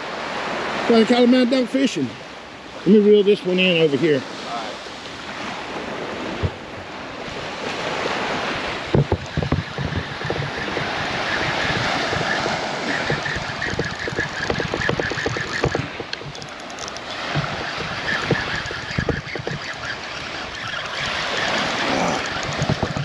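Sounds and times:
surf breaking on beach: 0:00.0 - 0:23.0
wind buffeting microphone: 0:03.6 - 0:23.0
short irregular knocks and clicks: 0:08.8 - 0:23.0.

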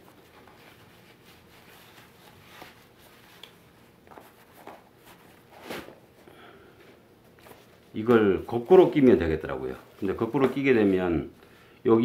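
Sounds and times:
nylon pouch rustling: 0:00.0 - 0:06.1.

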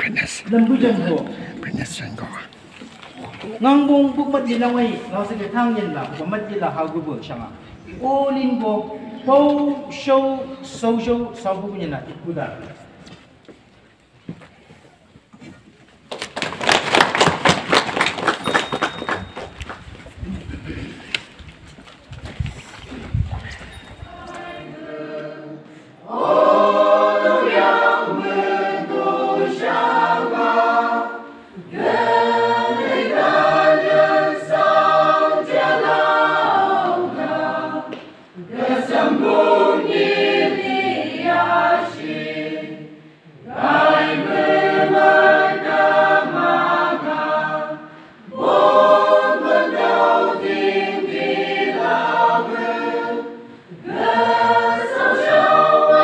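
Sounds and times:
choir singing a hymn: 0:24.0 - 0:56.0.

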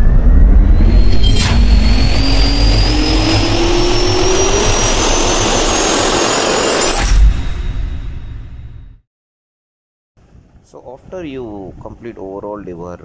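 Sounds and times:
jet engine turbine whine: 0:00.0 - 0:08.5
low rumble: 0:00.0 - 0:09.0
whoosh: 0:00.0 - 0:09.0.

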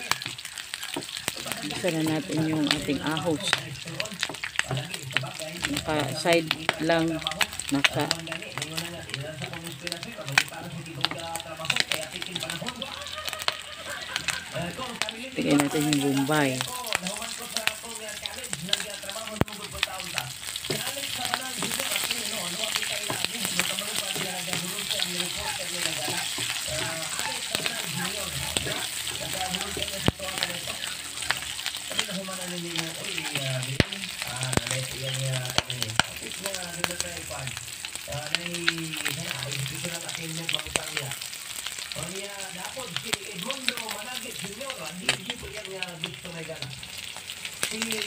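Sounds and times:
wooden spoon stirring: 0:00.0 - 0:13.0, 0:13.9 - 0:37.1
food sizzling in frying pan: 0:00.0 - 0:48.0.

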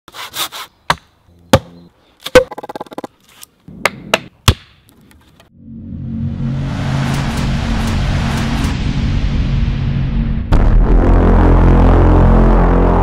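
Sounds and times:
hatchet chopping into log: 0:03.8 - 0:04.8
rumbling music: 0:05.5 - 0:13.0.

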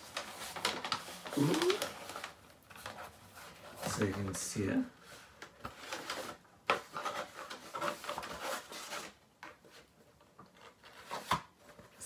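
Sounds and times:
packing paper rustling: 0:00.0 - 0:12.0.

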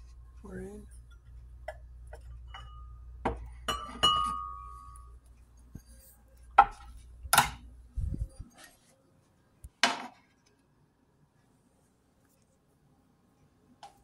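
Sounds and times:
glass knocks and clinks: 0:02.2 - 0:04.6.

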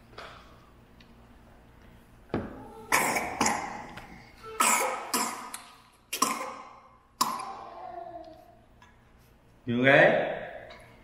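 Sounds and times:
person coughing: 0:02.9 - 0:03.8, 0:04.6 - 0:05.5, 0:06.1 - 0:07.7.

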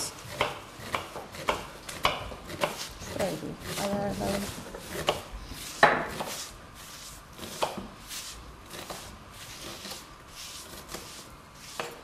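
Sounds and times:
knife chopping on wooden board: 0:00.3 - 0:02.9, 0:03.6 - 0:06.5, 0:07.4 - 0:08.0, 0:10.6 - 0:12.0.

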